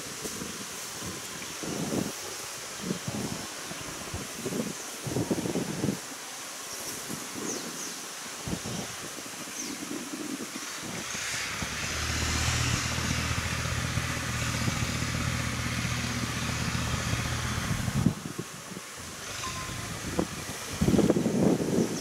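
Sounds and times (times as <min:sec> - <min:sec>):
hiss: 0:00.0 - 0:22.0
engine running steadily: 0:11.0 - 0:18.3, 0:19.0 - 0:21.2.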